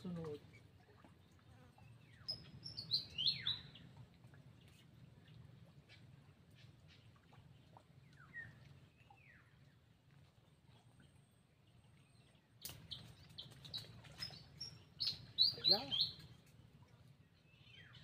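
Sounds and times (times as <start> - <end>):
bird chirps: 2.1 - 3.8, 12.6 - 16.3.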